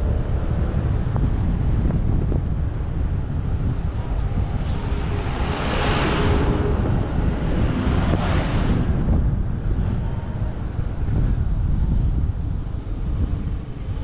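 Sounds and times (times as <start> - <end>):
vehicle noise: 0.0 - 14.0
wind buffeting microphone: 0.0 - 14.0.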